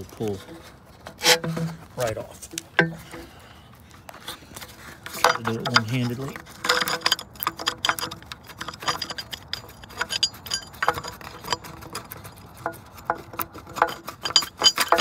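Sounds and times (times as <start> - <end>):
metal clamp clicks and clinks: 6.6 - 15.0.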